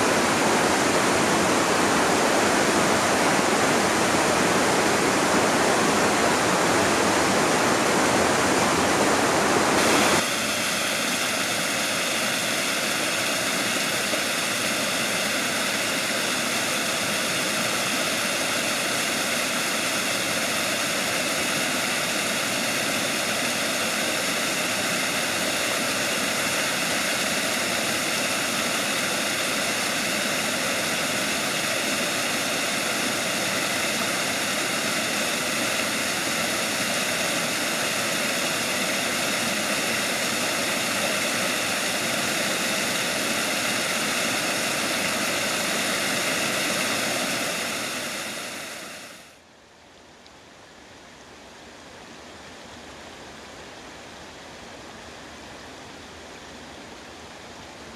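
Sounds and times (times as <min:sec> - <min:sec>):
stream rushing over rocks: 0:00.0 - 0:49.4
small waterfall cascading: 0:00.0 - 0:49.5, 0:50.4 - 0:57.9.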